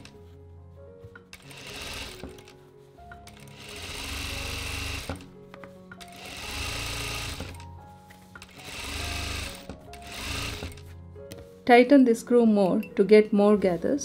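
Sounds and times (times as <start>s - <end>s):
background music: 0.0s - 14.0s
industrial sewing machine stitching: 1.4s - 2.5s, 3.3s - 5.2s, 6.1s - 7.6s, 8.6s - 10.8s.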